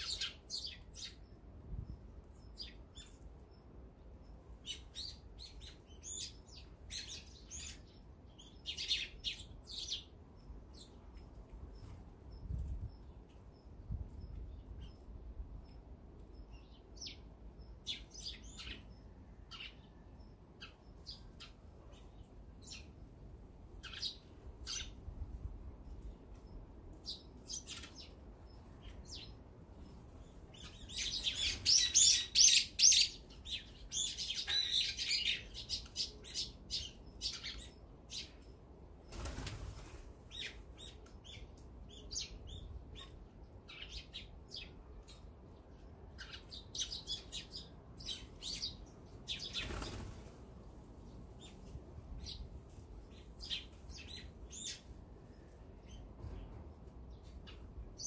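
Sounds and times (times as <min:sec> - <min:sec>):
songbirds chirping: 0:00.0 - 0:58.0
bird wings fluttering: 0:39.1 - 0:40.2, 0:49.5 - 0:50.4.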